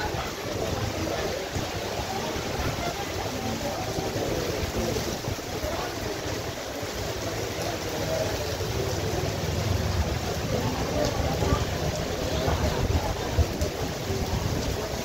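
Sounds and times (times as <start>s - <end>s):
heavy rain on pavement: 0.0s - 15.0s
wind rumble on microphone: 9.7s - 15.0s.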